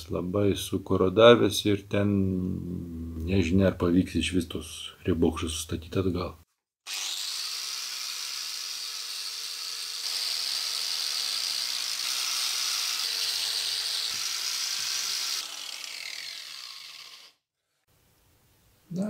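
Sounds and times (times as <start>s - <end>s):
angle grinder sanding metal: 6.9s - 17.4s.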